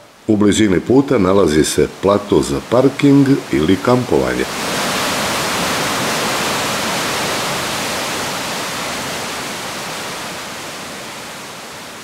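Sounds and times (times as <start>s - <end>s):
river water rushing: 0.0s - 12.0s.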